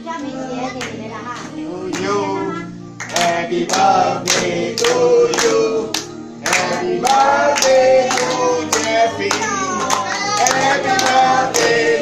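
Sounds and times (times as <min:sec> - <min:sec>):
family group singing a celebration song: 0:00.0 - 0:12.0
people clapping in time: 0:03.0 - 0:12.0.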